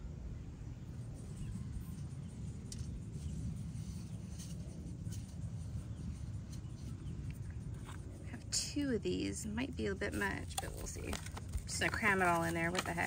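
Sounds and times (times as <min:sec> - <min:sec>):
steady low rumble: 0:00.0 - 0:13.0
hands rustling potting soil: 0:02.6 - 0:13.0.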